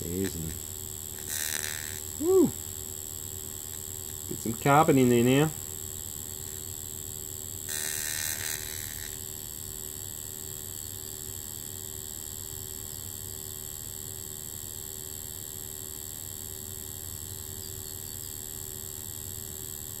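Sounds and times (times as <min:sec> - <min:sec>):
loud electrical buzz: 0:00.0 - 0:17.6
steady electrical hum: 0:00.0 - 0:20.0.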